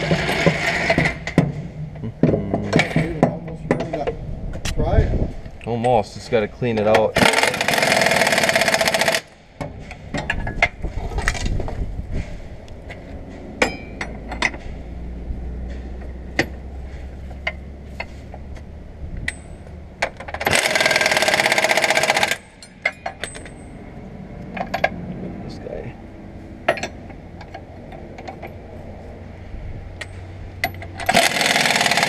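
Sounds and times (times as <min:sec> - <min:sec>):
pneumatic impact wrench hammering: 0:00.0 - 0:01.7, 0:07.1 - 0:10.8, 0:19.3 - 0:23.6, 0:30.0 - 0:32.0
low hum: 0:09.3 - 0:31.5
metal clinks and knocks: 0:12.9 - 0:14.9, 0:19.2 - 0:23.9, 0:24.5 - 0:25.0, 0:26.6 - 0:28.6, 0:30.0 - 0:32.0.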